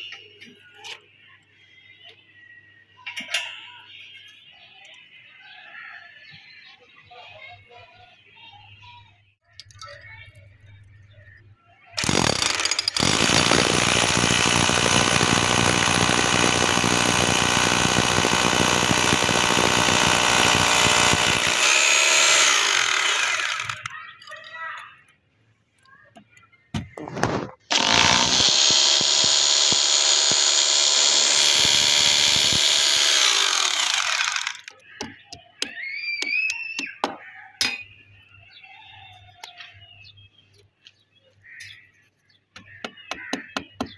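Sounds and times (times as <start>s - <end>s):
drill trigger blips: 12.0s - 23.9s, 27.7s - 34.7s
electric drill boring into concrete: 12.0s - 23.9s, 27.7s - 34.7s.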